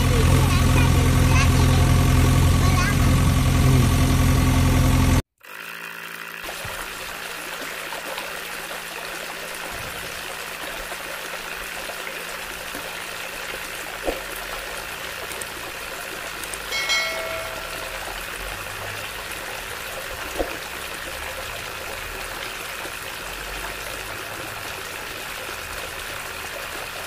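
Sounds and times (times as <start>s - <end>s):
small motor running: 0.0s - 26.8s
water pouring into puddle: 5.4s - 27.0s.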